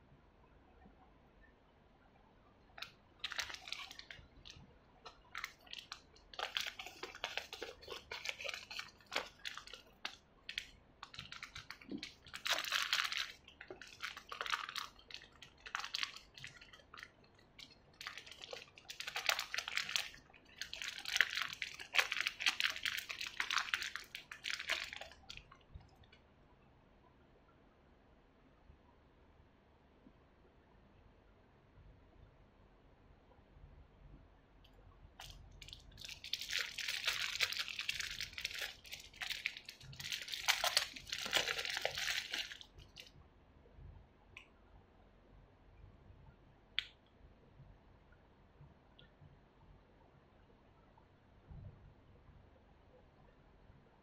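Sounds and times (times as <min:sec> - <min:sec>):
plastic bags crinkling: 0:02.8 - 0:25.5, 0:35.2 - 0:43.1.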